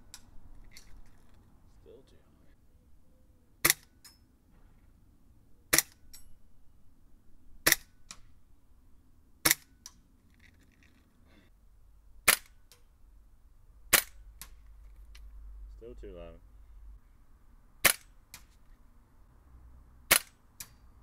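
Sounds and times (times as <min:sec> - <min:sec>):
airsoft rifle shots: 0:03.6 - 0:04.0, 0:05.7 - 0:06.1, 0:07.6 - 0:08.2, 0:09.4 - 0:09.8, 0:12.2 - 0:12.8, 0:13.9 - 0:14.6, 0:17.8 - 0:18.5, 0:20.1 - 0:20.8.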